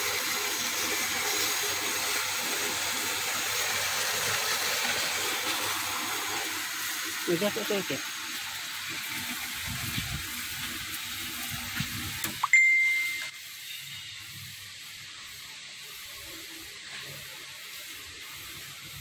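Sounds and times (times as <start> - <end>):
metallic ding: 12.4 - 13.3.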